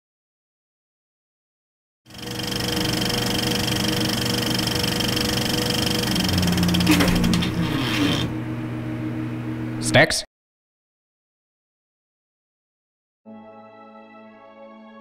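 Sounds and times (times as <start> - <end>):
low hum: 2.1 - 9.8
mechanical buzzing drone: 2.1 - 9.8.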